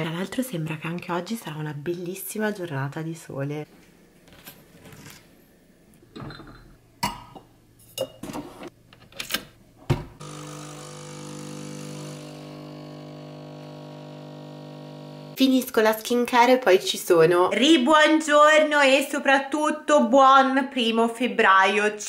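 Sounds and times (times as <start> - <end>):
coffee pouring: 10.2 - 15.4
espresso machine pump humming: 10.2 - 15.4.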